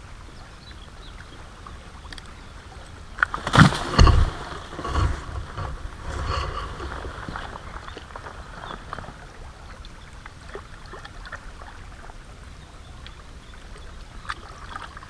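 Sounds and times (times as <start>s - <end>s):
knocks and rustling on camera: 3.5s - 7.4s.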